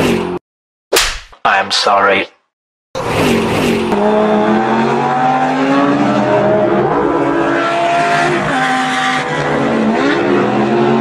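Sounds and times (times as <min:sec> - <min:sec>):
truck engine revving: 0:03.0 - 0:11.0.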